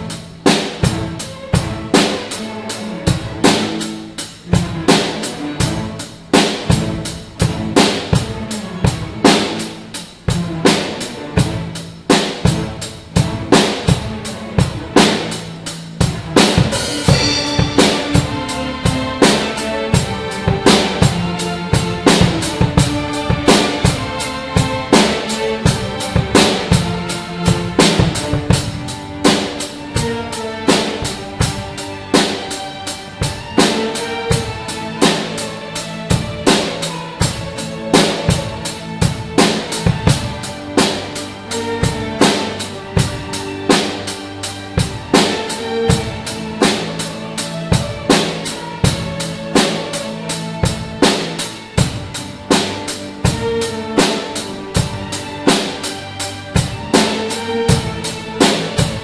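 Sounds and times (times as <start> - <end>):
bass drum and snare: 0.0 - 59.0
sustained string notes: 0.0 - 59.0.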